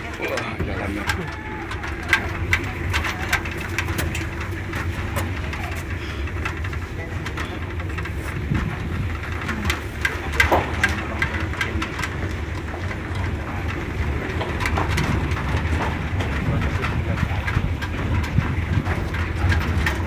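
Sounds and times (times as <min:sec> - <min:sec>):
metal railings rattling: 0:00.0 - 0:20.0
truck engine running: 0:00.0 - 0:20.0.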